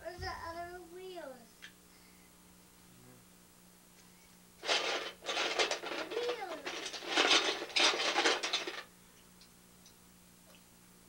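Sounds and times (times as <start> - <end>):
plastic bricks rattling in a box: 4.6 - 8.9.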